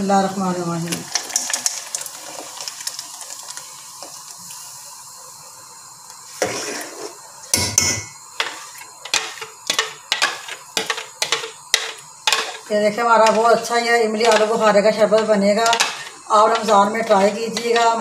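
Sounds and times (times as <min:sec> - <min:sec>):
fruit pulp poured with soft hiss: 0:01.4 - 0:07.4
spoon clinking and scraping pot: 0:06.4 - 0:18.0.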